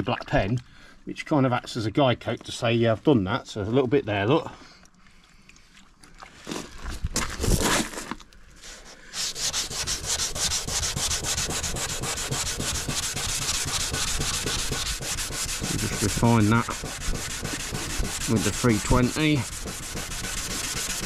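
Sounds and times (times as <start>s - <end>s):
hand sanding fibreglass: 8.7s - 21.0s.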